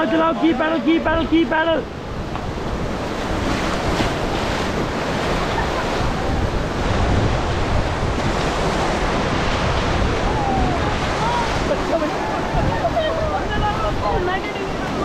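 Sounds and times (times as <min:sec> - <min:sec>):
whitewater rushing: 0:00.0 - 0:15.0
wind buffeting microphone: 0:00.0 - 0:15.0.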